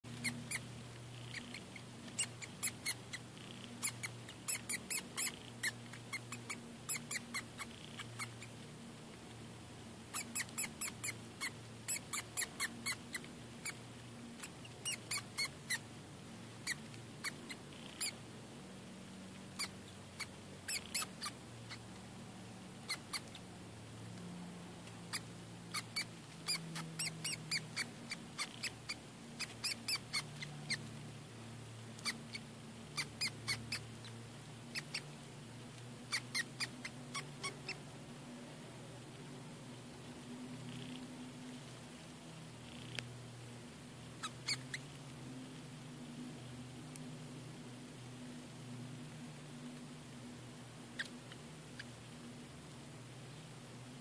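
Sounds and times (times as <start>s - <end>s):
mouse squeaking: 0.1s - 8.6s, 10.1s - 13.8s, 14.4s - 15.9s, 16.6s - 18.2s, 19.6s - 21.9s, 22.8s - 23.4s, 25.1s - 30.9s, 32.0s - 35.1s, 36.1s - 37.8s, 44.2s - 44.9s, 51.0s - 51.9s.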